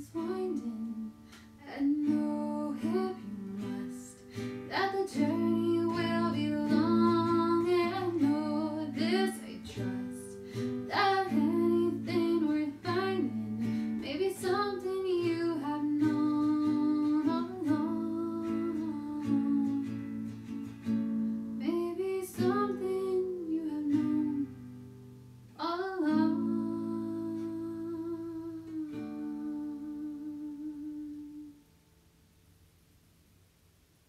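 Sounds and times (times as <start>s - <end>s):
person singing: 0.0s - 20.0s, 25.6s - 31.6s
guitar accompaniment: 0.0s - 31.7s.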